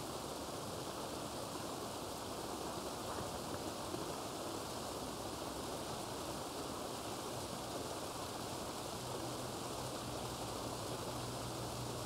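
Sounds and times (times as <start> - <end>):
small waterfall rushing: 0.0 - 12.0.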